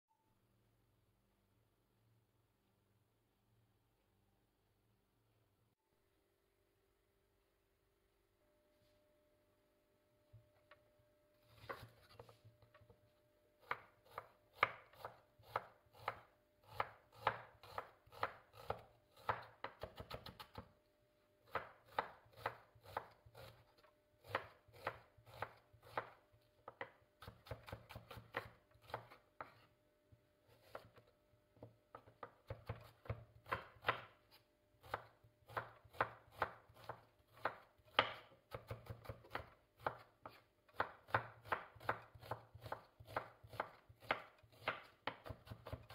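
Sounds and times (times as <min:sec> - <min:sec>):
knife chopping on wooden board: 0:13.6 - 0:20.7, 0:21.5 - 0:23.6, 0:24.2 - 0:29.6, 0:31.6 - 0:34.2, 0:34.8 - 0:45.9.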